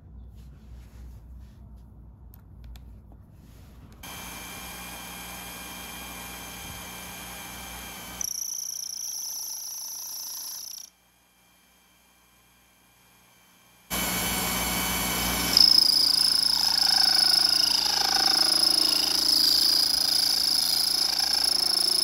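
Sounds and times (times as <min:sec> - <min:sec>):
lathe motor whining: 0:04.0 - 0:22.0
high-pitched whine: 0:06.9 - 0:22.0.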